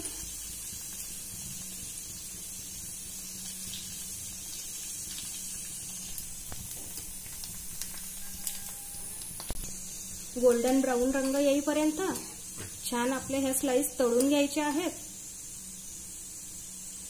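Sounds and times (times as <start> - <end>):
bread sizzling in hot oil: 0.0 - 17.0
metal spoon clicking against pan: 10.5 - 11.5, 14.1 - 14.4.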